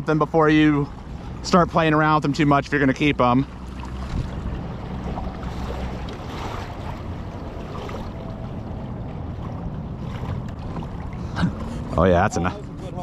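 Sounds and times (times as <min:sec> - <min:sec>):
water lapping around kayak: 0:00.0 - 0:13.0
wind buffeting microphone: 0:03.5 - 0:13.0.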